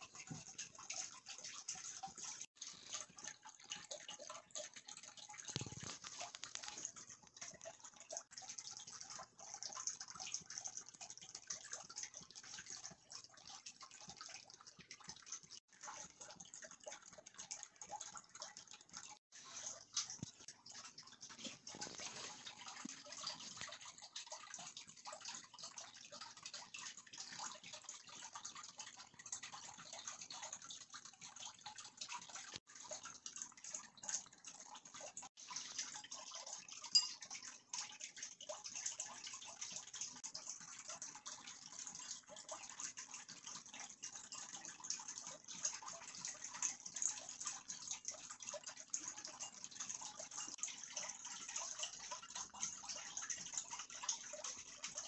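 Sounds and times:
cardboard and paper rustling: 0:05.6 - 0:06.8, 0:21.6 - 0:22.6.

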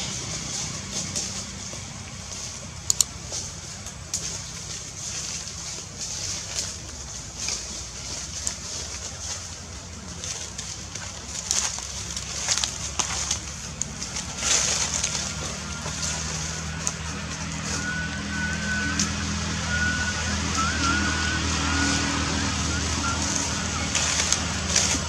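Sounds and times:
vehicle engine humming: 0:00.0 - 0:25.0
sharp clicks: 0:02.8 - 0:03.2
thin wavering whistle: 0:15.2 - 0:25.0.

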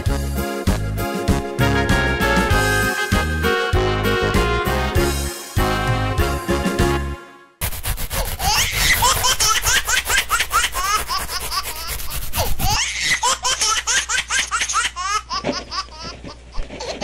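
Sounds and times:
small children giggling: 0:08.4 - 0:17.0.

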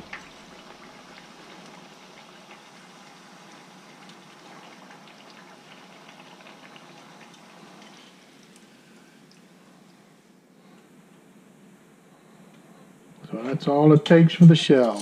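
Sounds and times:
tortilla sizzling in hot oil: 0:00.0 - 0:09.9.

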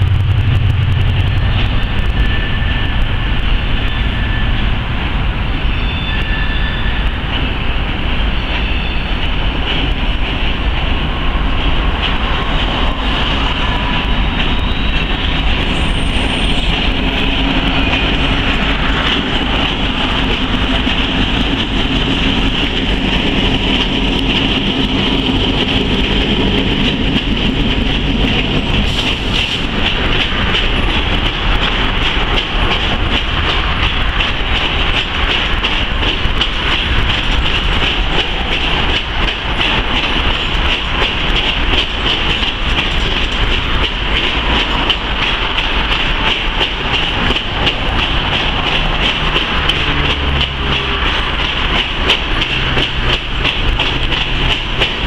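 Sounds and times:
rail cars rolling rumble: 0:00.0 - 0:55.0
wheels clicking over rail joints: 0:16.6 - 0:55.0.

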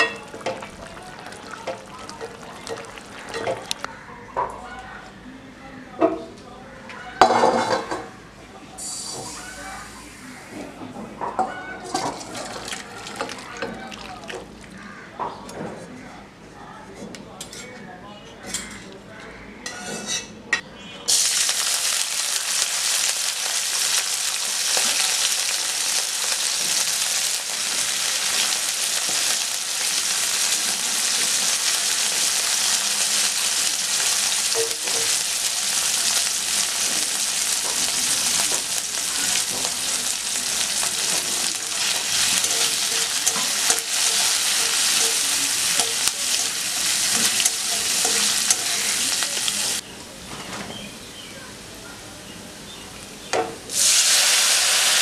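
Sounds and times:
garlic sizzling in hot oil: 0:00.0 - 0:03.9, 0:21.1 - 0:49.8, 0:53.7 - 0:55.0
metal spatula stirring: 0:37.6 - 0:49.8.

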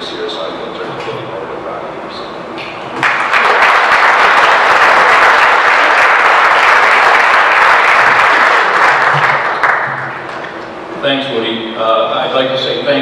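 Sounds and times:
audience applauding: 0:03.0 - 0:10.6.

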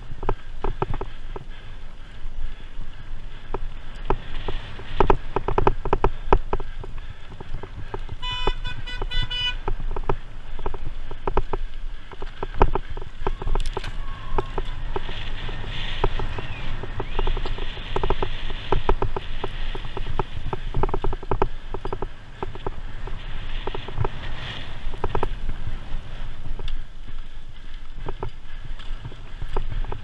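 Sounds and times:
bike rattling over bumpy ground: 0:00.0 - 0:30.0
wind noise: 0:00.0 - 0:30.0
pulsing horn-like tone: 0:08.2 - 0:09.6.

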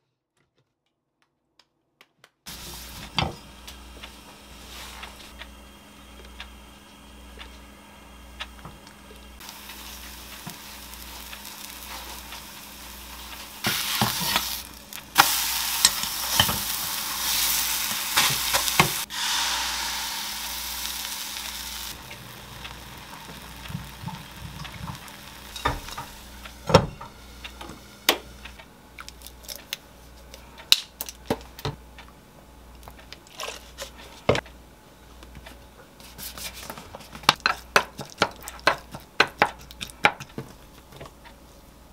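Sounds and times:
batter sizzling in frying pan: 0:09.4 - 0:29.6, 0:37.3 - 0:40.6.

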